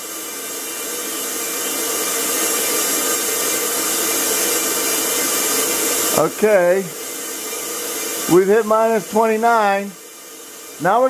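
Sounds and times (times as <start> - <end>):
air compressor running: 0.0 - 11.0
vacuum pump hissing: 0.0 - 11.0.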